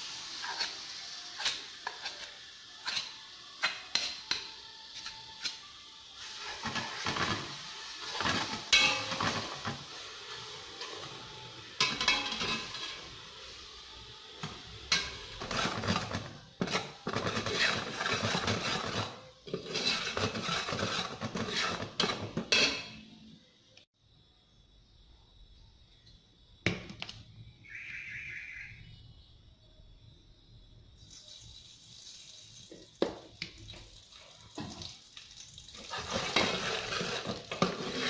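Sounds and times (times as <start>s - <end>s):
metal ladle scraping a pot: 0.4s - 4.4s, 6.2s - 13.2s, 14.9s - 23.0s, 35.8s - 38.0s.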